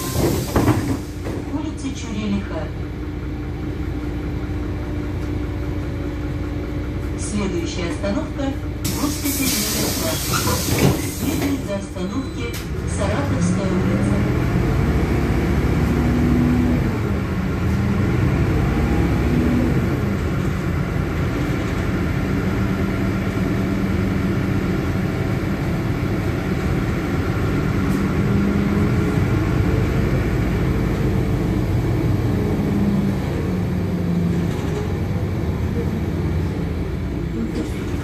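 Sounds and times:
bus diesel engine hum: 0.0s - 38.0s
road noise: 0.0s - 38.0s.

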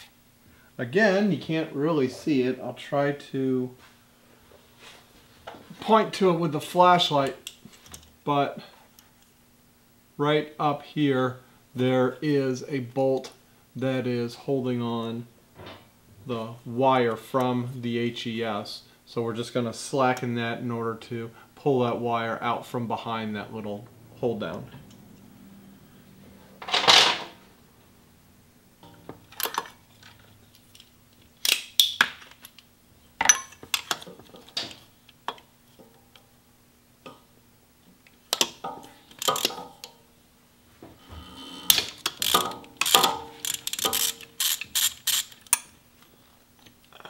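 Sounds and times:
ratchet wrench clicking: 39.2s - 39.5s, 41.9s - 45.6s.

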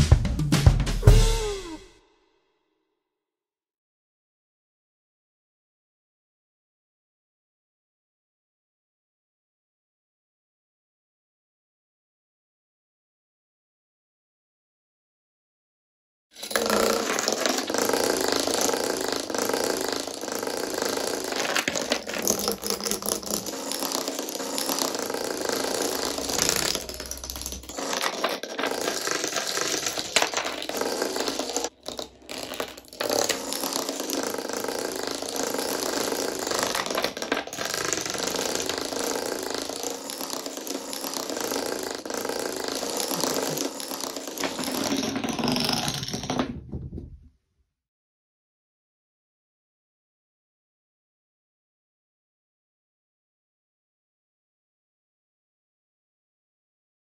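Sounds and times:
dominoes toppling clatter: 16.4s - 46.6s.

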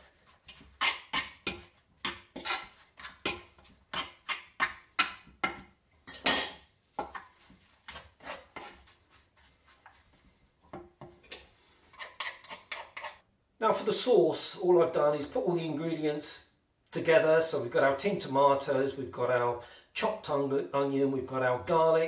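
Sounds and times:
wooden spoon scraping wooden bowl: 0.0s - 5.7s, 6.9s - 13.2s.

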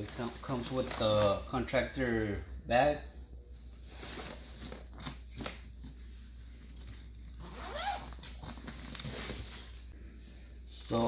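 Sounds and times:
bag zipper being pulled: 7.4s - 8.4s.

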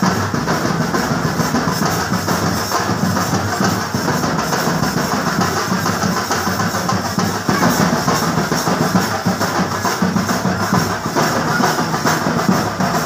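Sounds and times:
drums beating fast rhythm: 0.0s - 13.0s.

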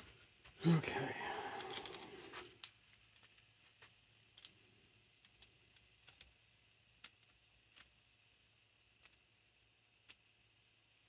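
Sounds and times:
small metal parts clicking: 1.5s - 8.1s, 8.8s - 10.4s.

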